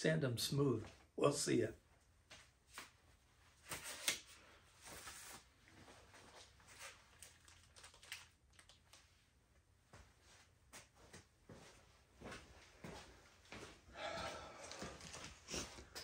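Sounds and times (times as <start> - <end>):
magazine rustling: 3.6 - 9.1.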